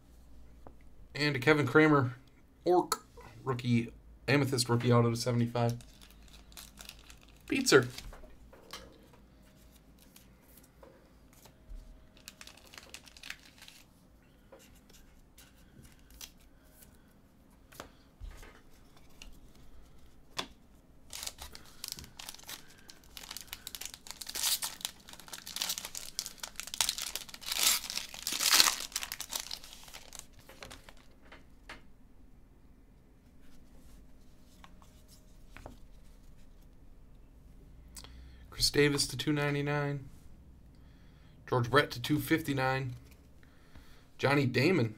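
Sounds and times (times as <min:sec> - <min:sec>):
foil wrapper tearing and crinkling: 0:05.7 - 0:08.0, 0:12.2 - 0:13.9, 0:21.1 - 0:31.1.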